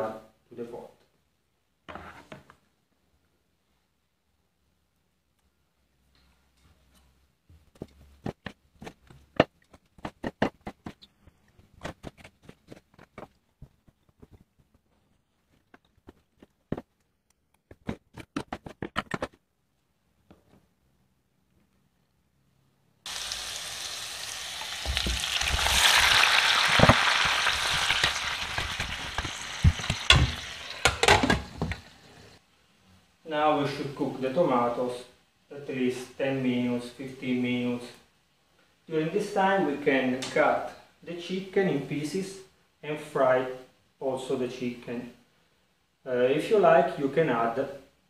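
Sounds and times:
tomatoes sizzling in a pan: 23.1 - 32.4.

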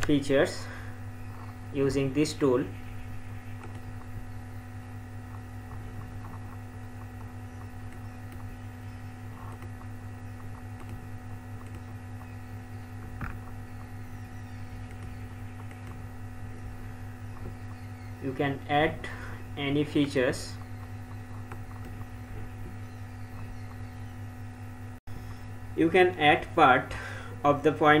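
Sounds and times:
electrical mains hum: 0.0 - 28.0.

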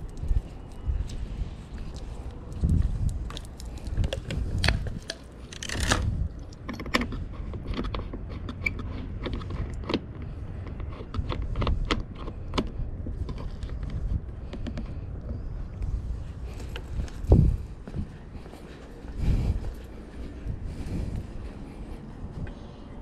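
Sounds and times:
low rumble: 0.0 - 23.0
hose fittings clicking and scraping: 1.8 - 15.5.

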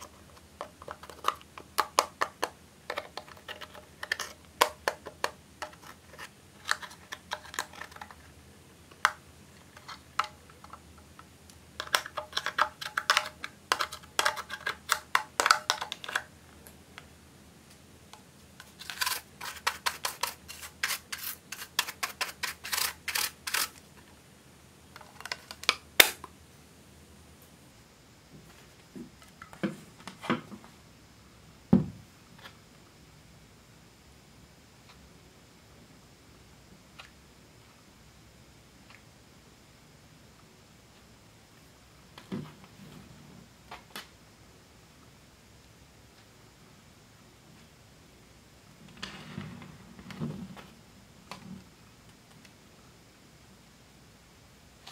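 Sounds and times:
spatula scraping plastic palette: 0.0 - 8.3, 11.8 - 16.3, 18.6 - 23.8.

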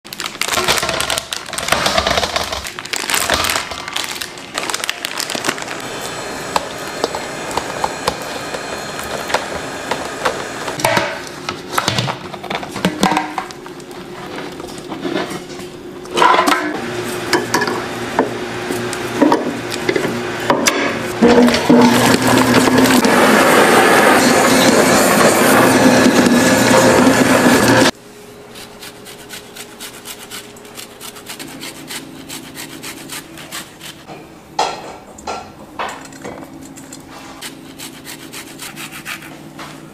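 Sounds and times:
motor hum: 5.4 - 11.6, 13.4 - 28.0
stand mixer beater churning: 5.5 - 10.9, 16.8 - 27.9.

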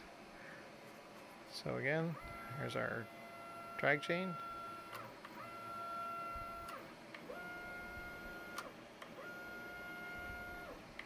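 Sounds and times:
stepper motors whining: 2.2 - 10.8.

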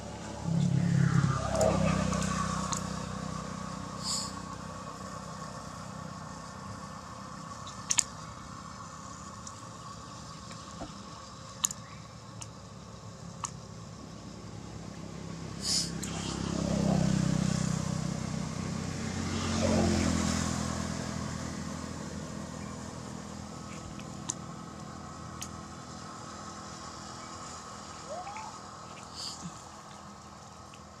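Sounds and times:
motorbike passing: 0.0 - 6.6, 15.4 - 26.0
low steady hum: 0.0 - 19.8.

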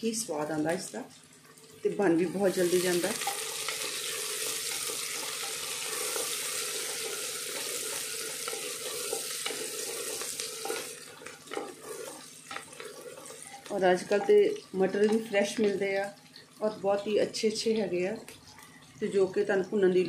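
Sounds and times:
onions sizzling in hot oil: 0.1 - 18.2
wooden spatula scraping a pot: 5.0 - 14.4.

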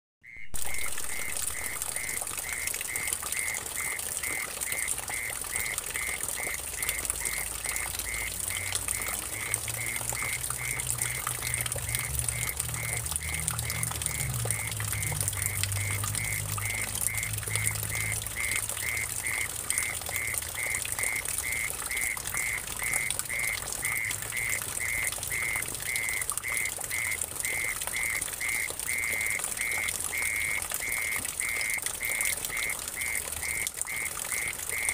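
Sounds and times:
water trickling and splashing: 0.2 - 34.9
mole cricket trilling: 12.8 - 23.0.

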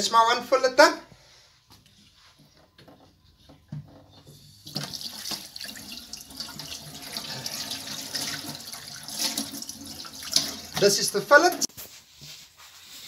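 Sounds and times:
water splashing into steel sink: 4.6 - 11.1.

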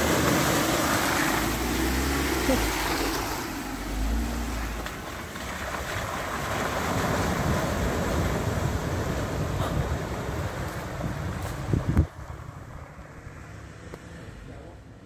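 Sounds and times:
tyres splashing through puddles: 0.0 - 14.2
wind rumbling on microphone: 4.7 - 13.6.

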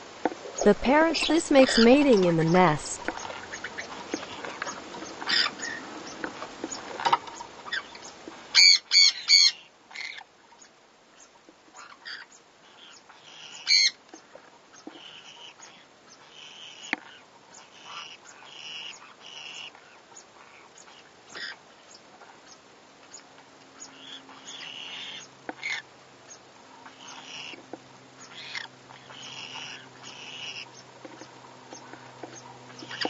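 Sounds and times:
parrot squawks: 8.6 - 10.2.

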